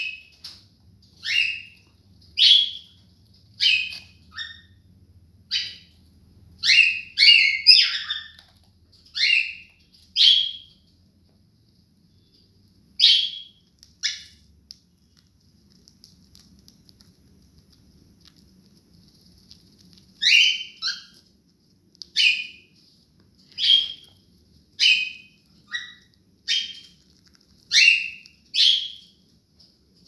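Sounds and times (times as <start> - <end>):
cockatiels chirping: 1.2 - 3.0, 3.6 - 4.8, 5.5 - 6.0, 6.6 - 8.5, 9.1 - 10.8, 13.0 - 14.4, 20.2 - 21.2, 22.1 - 22.7, 23.5 - 24.2, 24.8 - 29.2.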